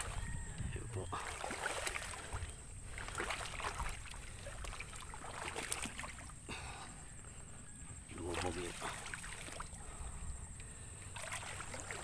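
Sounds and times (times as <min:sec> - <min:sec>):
footsteps wading through water: 0:00.0 - 0:06.5, 0:08.1 - 0:10.1, 0:11.0 - 0:12.0
water splashing: 0:00.9 - 0:06.6, 0:08.1 - 0:10.0, 0:11.1 - 0:12.0.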